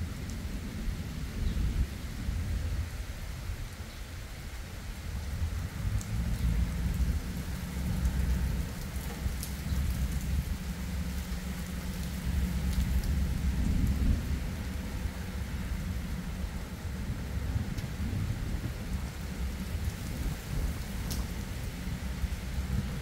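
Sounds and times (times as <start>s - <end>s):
steady rain: 0.0s - 23.0s
low thunder rumble: 4.9s - 23.0s.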